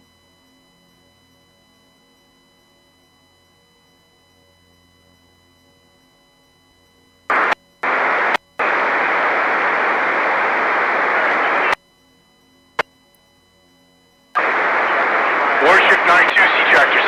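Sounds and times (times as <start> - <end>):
radio static hiss: 7.3 - 11.8, 14.4 - 17.0
radio squelch click: 14.4 - 17.0.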